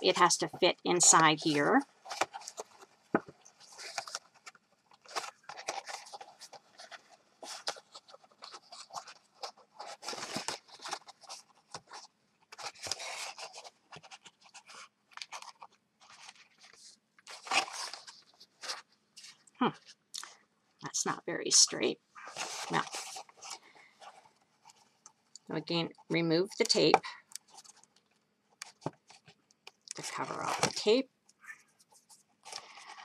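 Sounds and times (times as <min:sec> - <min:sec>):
stiff paper rustling and crinkling: 0:01.4 - 0:20.0, 0:22.2 - 0:25.2, 0:26.5 - 0:29.4, 0:31.6 - 0:33.0.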